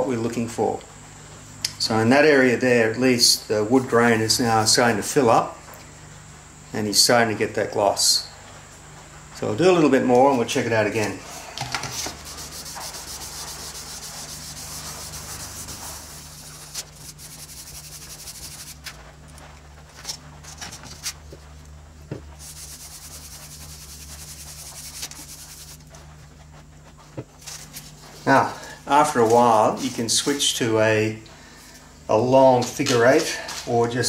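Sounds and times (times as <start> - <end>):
scratchy rubbing on wood: 11.9 - 18.9, 22.4 - 26.0.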